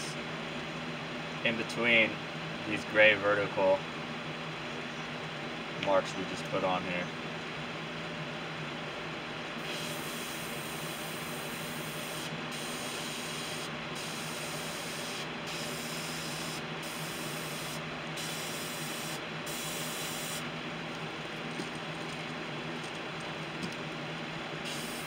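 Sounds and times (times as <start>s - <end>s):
steady low hum: 0.0s - 25.0s
airbrush hissing: 9.6s - 20.4s, 24.6s - 25.0s.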